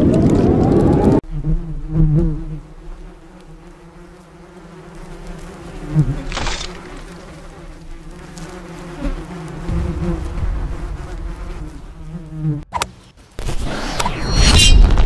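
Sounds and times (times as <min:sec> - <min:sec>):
honeybees buzzing: 0:01.2 - 0:13.3
rush of noise: 0:13.4 - 0:15.0.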